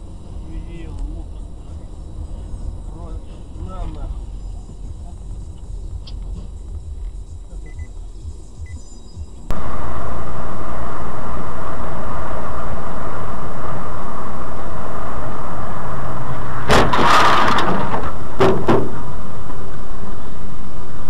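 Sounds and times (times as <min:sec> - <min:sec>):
engine and road noise in cab: 0:00.0 - 0:21.0
loud rushing burst: 0:09.5 - 0:19.4
short knocks: 0:16.7 - 0:19.0.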